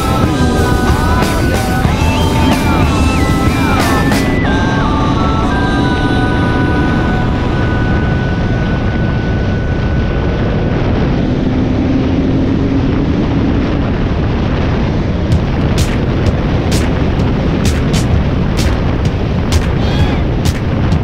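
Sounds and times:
wind noise: 0:00.0 - 0:21.0
sharp knock: 0:15.3 - 0:21.0.

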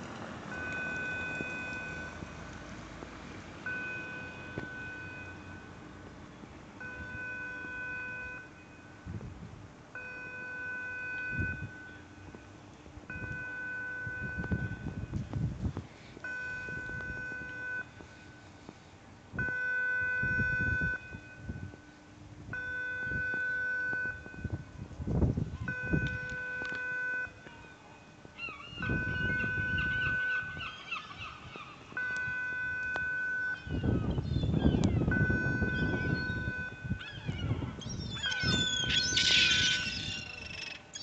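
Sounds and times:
long electronic warning beeps: 0:00.5 - 0:02.2, 0:03.6 - 0:05.8, 0:06.8 - 0:09.1, 0:10.0 - 0:15.2, 0:16.2 - 0:18.6, 0:19.4 - 0:24.8, 0:25.6 - 0:41.0
wind rumbling on microphone: 0:09.0 - 0:09.7, 0:14.0 - 0:18.1, 0:19.3 - 0:26.8, 0:28.2 - 0:41.0.

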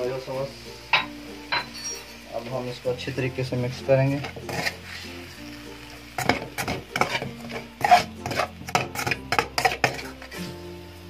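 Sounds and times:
spoon scraping a metal pan: 0:04.1 - 0:05.4, 0:06.2 - 0:10.6.

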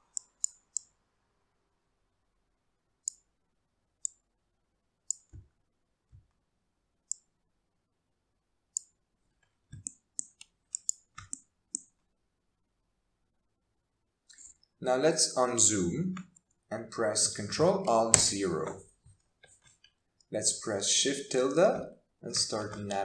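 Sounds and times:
computer mouse clicking: 0:00.1 - 0:00.9, 0:04.0 - 0:04.2, 0:05.1 - 0:05.4, 0:09.7 - 0:11.9.

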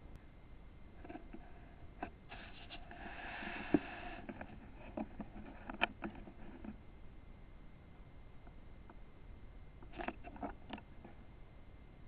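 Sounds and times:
small clicks: 0:09.8 - 0:11.2.

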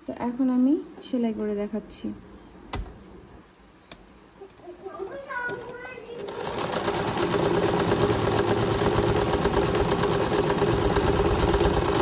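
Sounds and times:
sewing machine motor hum: 0:05.5 - 0:12.0
sewing machine needle clatter: 0:05.5 - 0:12.0.

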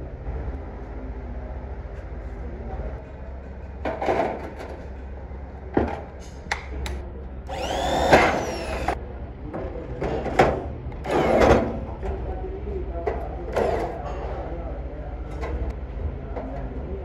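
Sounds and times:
electric drill whining: 0:07.5 - 0:09.0.

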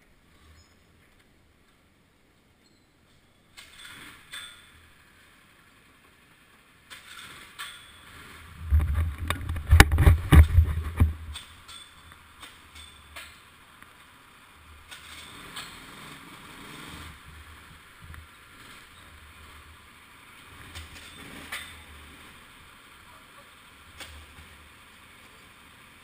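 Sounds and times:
sharp clicks and knocks: 0:08.6 - 0:13.9.

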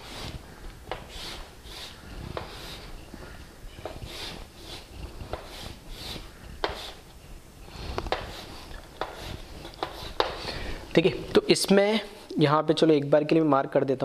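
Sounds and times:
chalk scraping on chalkboard: 0:00.0 - 0:03.0, 0:03.8 - 0:07.1, 0:07.7 - 0:10.5
chalk tapping on board: 0:03.8 - 0:07.0, 0:08.0 - 0:10.4.

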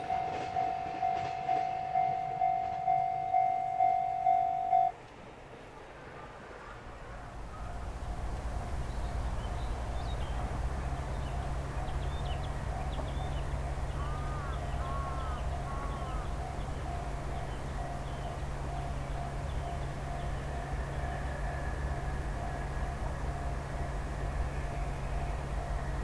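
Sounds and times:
distant freight train rumble: 0:00.0 - 0:26.0
small birds chirping: 0:08.8 - 0:20.5
arching bird calls: 0:11.3 - 0:21.1.

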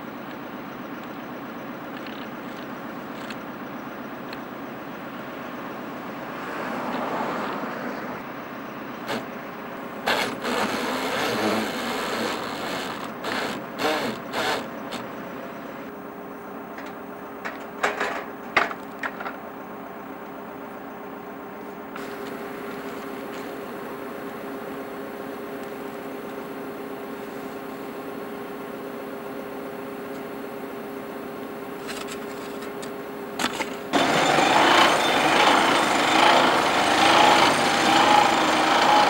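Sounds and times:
machine engine running: 0:09.0 - 0:15.8, 0:33.4 - 0:39.0.

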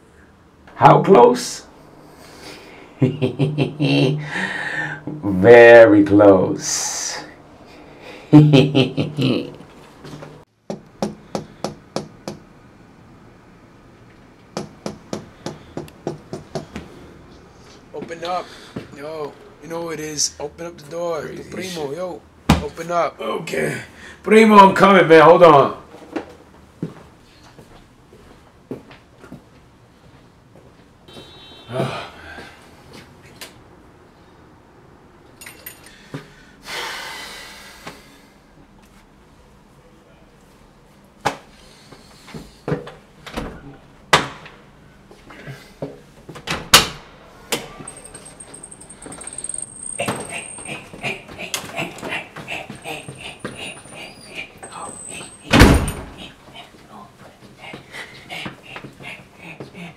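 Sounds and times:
knocking on a door: 0:10.7 - 0:12.4, 0:14.6 - 0:16.7.

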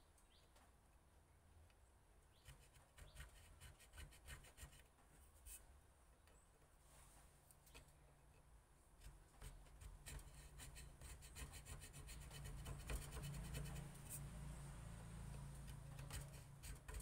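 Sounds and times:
knife scratching wood: 0:02.4 - 0:04.9, 0:09.0 - 0:14.4, 0:15.3 - 0:17.0.

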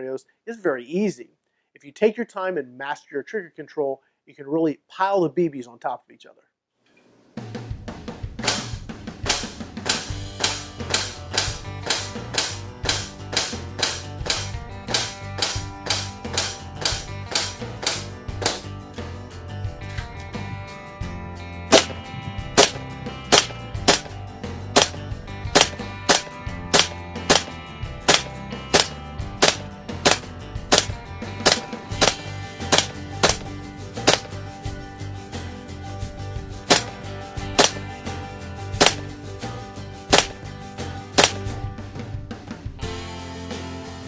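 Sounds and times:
background music: 0:07.4 - 0:44.0
bb pistol shots: 0:08.4 - 0:18.6, 0:21.7 - 0:22.0, 0:22.6 - 0:24.1, 0:24.7 - 0:34.3, 0:36.7 - 0:37.0, 0:37.6 - 0:37.8, 0:38.8 - 0:39.1, 0:40.1 - 0:40.4, 0:41.2 - 0:41.5.

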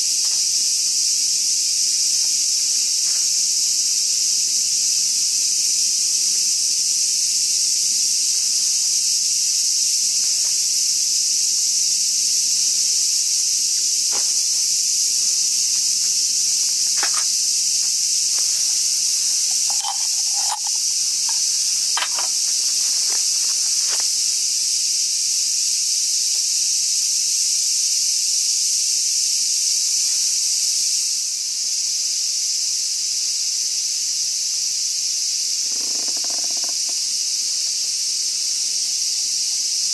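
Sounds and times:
cicadas chorus: 0:00.0 - 0:39.9
metal cookware clinking: 0:19.4 - 0:21.4.

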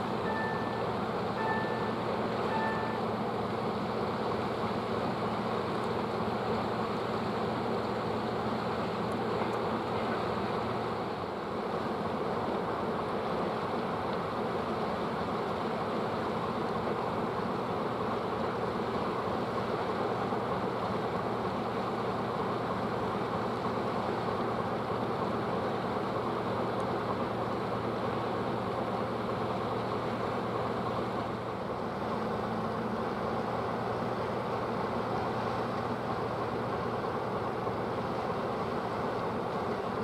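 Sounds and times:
machinery hum: 0:00.0 - 0:05.5.

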